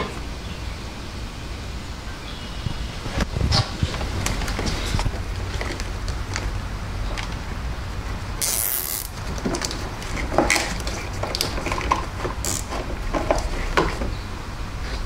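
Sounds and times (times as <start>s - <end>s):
steady low rumble: 0.2s - 8.4s
wires and connectors rustling: 3.0s - 14.2s.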